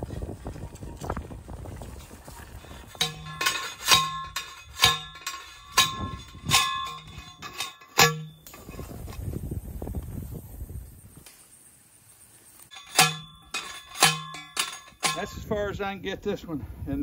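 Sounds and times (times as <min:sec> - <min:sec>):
ringing metal clangs: 0:02.6 - 0:09.0, 0:12.7 - 0:15.6.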